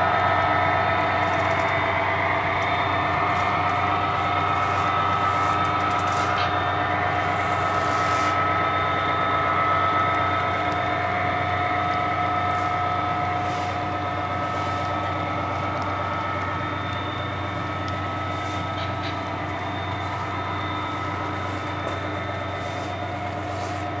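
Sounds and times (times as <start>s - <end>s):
model train cars rolling: 0.6s - 9.2s.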